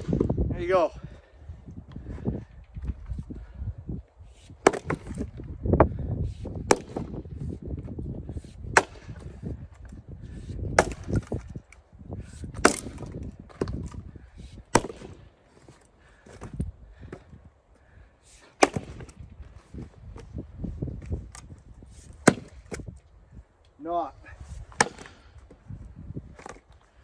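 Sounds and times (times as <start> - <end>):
axe splitting firewood: 4.4 - 23.0, 24.5 - 27.0
low thuds and rustling: 10.6 - 17.4, 18.6 - 23.0.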